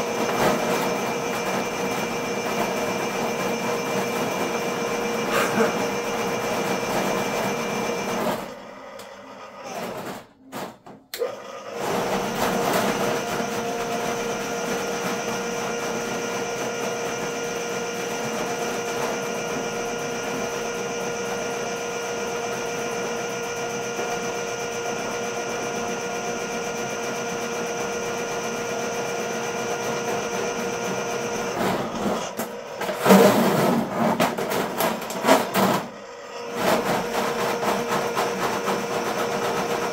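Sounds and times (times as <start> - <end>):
drain machine motor running: 0.0 - 9.9, 11.1 - 39.9
cable clattering and knocking: 31.6 - 35.9.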